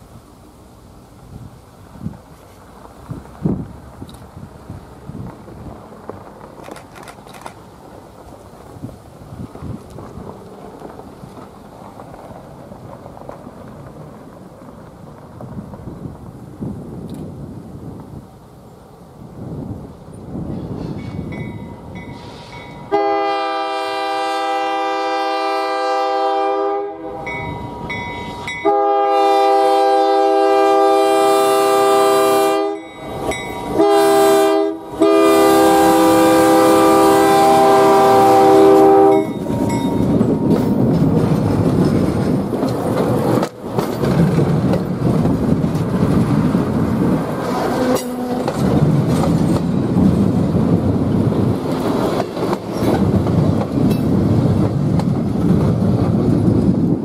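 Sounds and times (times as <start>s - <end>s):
train wheels on rails: 0.0s - 57.0s
locomotive air horn blasts: 22.2s - 27.4s, 28.5s - 32.9s, 33.7s - 40.2s, 47.8s - 48.5s.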